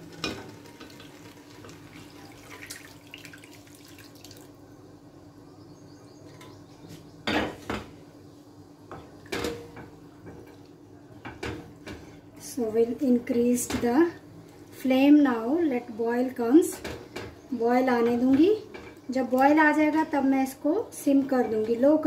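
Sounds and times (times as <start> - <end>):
liquid trickling into pan: 0.2 - 4.6.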